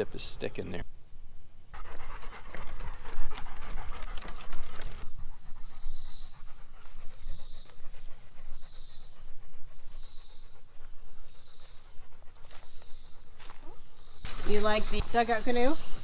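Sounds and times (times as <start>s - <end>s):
dogs panting: 1.7s - 16.0s
paws clicking on wooden boards: 1.8s - 5.8s.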